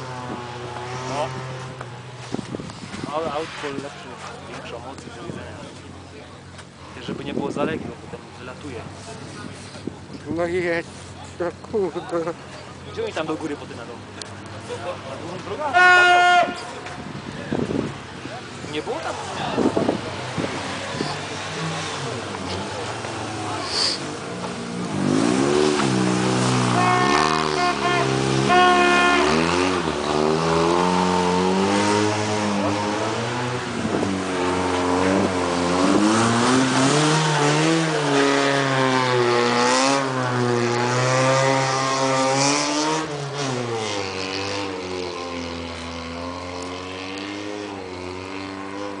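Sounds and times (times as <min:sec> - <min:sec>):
car engine revving: 0:18.8 - 0:49.0.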